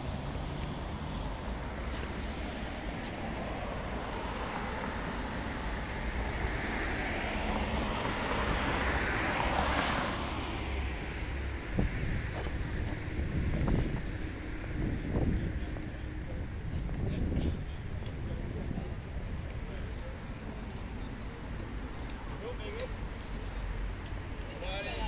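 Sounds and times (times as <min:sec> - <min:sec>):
vehicle passing by: 0:00.0 - 0:14.0
steady low traffic rumble: 0:00.0 - 0:25.0.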